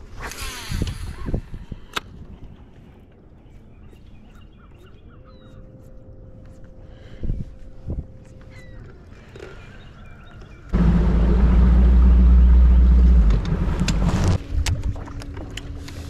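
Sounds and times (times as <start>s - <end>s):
electric motor whine: 10.8s - 14.4s.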